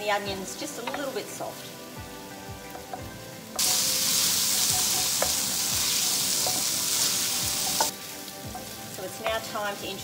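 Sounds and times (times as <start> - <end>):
vegetables sizzling in oil: 0.0 - 10.0
wooden spoon knocking pan: 0.8 - 1.1, 4.8 - 6.6.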